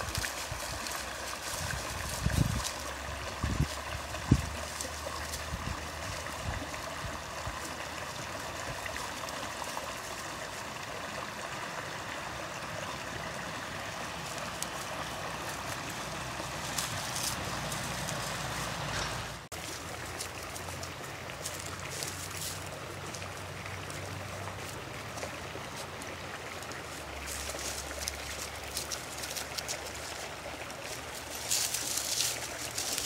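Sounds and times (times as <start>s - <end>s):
brook babbling: 0.0s - 33.0s.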